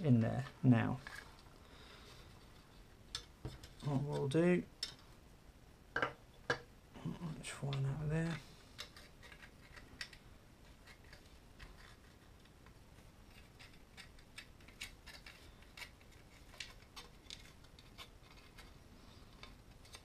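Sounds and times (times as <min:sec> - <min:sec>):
plastic parts clicking and tapping: 0:10.8 - 0:18.7.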